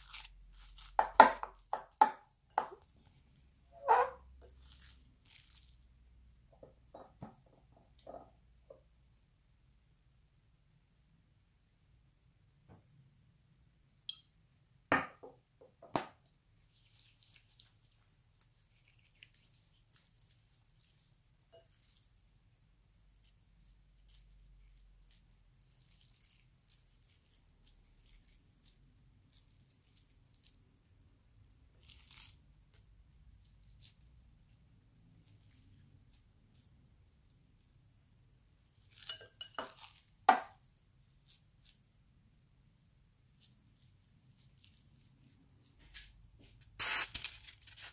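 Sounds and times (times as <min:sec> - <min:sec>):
hands squishing meat mixture: 0:00.0 - 0:06.4, 0:16.6 - 0:47.9.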